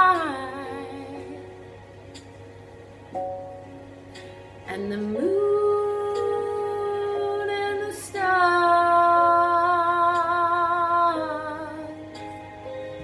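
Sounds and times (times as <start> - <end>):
woman singing slow ballad: 0.0 - 1.8, 4.6 - 12.3.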